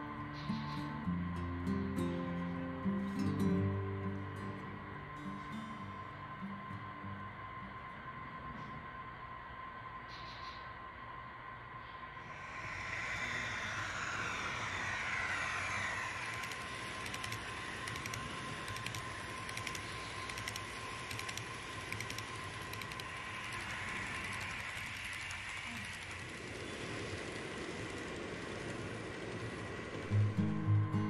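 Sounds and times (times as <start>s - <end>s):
model train whine: 0.0s - 31.0s
wheels clicking over rail joints: 15.4s - 30.1s.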